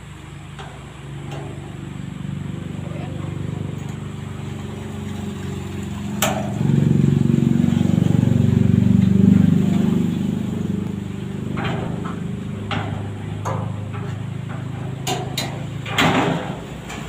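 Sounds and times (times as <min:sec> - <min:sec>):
engine running: 0:00.0 - 0:17.0
sharp metal knocks: 0:06.1 - 0:07.0, 0:07.6 - 0:17.0.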